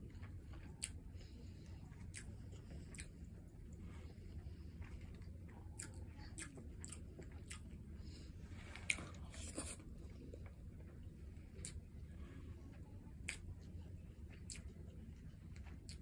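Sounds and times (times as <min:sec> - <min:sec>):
chewing and wet mouth clicks: 0:00.1 - 0:03.9, 0:04.8 - 0:07.8, 0:11.5 - 0:11.9, 0:13.2 - 0:16.0.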